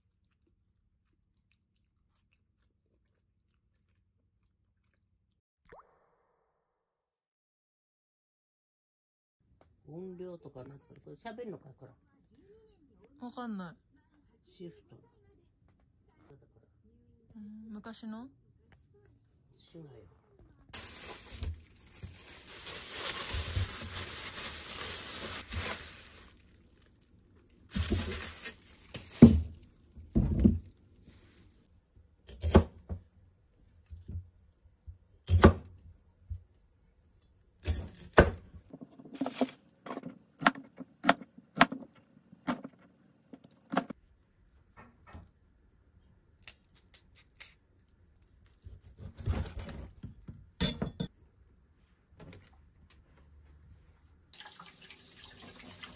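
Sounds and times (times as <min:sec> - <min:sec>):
plastic bag rustling: 0:20.8 - 0:30.0, 0:38.9 - 0:39.8
knife chopping on plastic board: 0:39.2 - 0:42.8.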